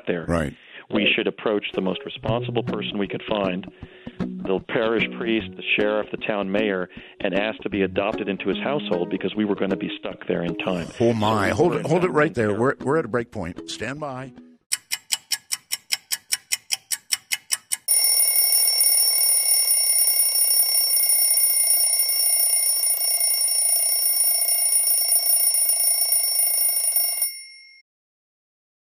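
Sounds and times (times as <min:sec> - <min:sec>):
clock ticking: 0:14.7 - 0:18.6
alarm bell ringing: 0:17.9 - 0:27.8.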